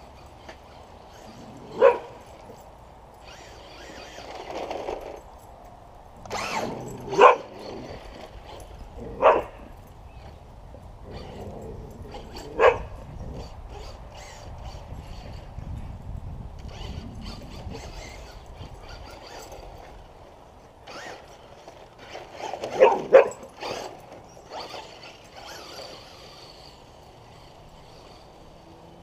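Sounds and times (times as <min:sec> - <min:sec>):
dog barking: 0:01.8 - 0:02.1, 0:07.1 - 0:07.5, 0:09.2 - 0:09.6, 0:12.6 - 0:12.9, 0:22.8 - 0:23.4.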